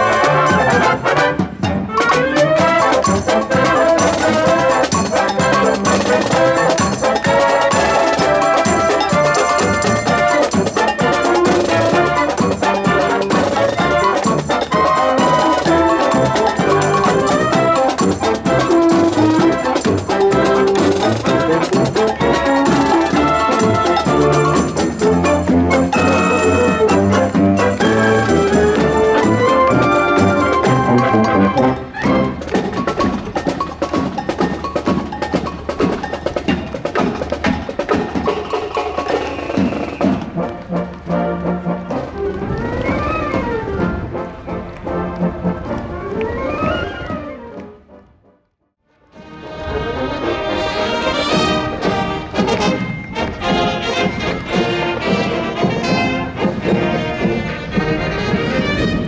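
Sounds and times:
brass chord: 0:00.0 - 0:32.5, 0:47.9 - 0:59.0
trumpets and trombones playing: 0:00.0 - 0:33.2, 0:38.3 - 0:48.3, 0:49.0 - 0:59.0
drum and block strokes: 0:00.0 - 0:43.6, 0:51.1 - 0:59.0.

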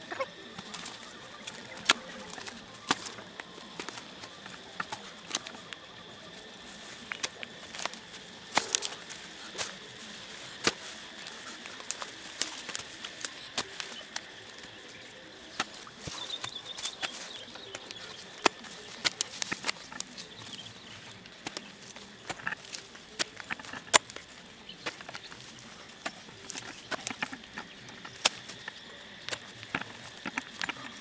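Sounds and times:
digging tool chopping into soil: 0:10.6 - 0:14.3, 0:15.6 - 0:31.0.

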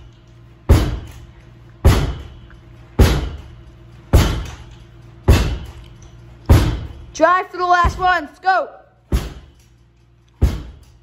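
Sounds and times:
ball smacking rebounder net: 0:00.7 - 0:01.2, 0:01.8 - 0:02.4, 0:03.0 - 0:03.5, 0:04.1 - 0:04.7, 0:05.3 - 0:05.7, 0:06.5 - 0:07.0, 0:09.1 - 0:09.6, 0:10.4 - 0:10.8.

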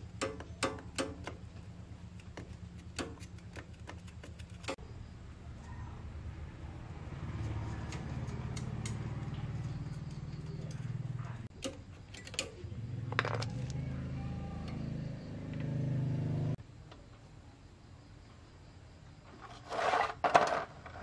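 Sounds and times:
sharp metallic clicks and taps: 0:00.1 - 0:01.5, 0:07.8 - 0:12.6
small motorbike engine running: 0:07.2 - 0:11.5, 0:12.5 - 0:16.6.

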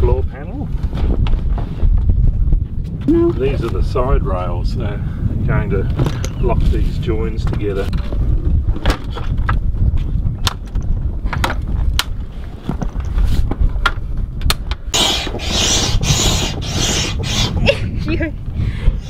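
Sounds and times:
steady low rumble: 0:00.0 - 0:19.0
hand pump hissing: 0:15.0 - 0:17.7.

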